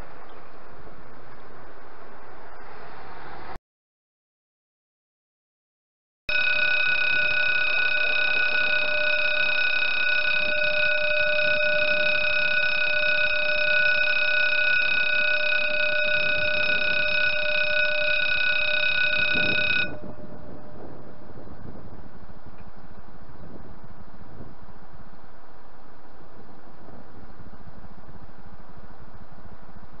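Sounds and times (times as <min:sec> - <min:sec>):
level crossing warning bell: 0:06.3 - 0:21.4.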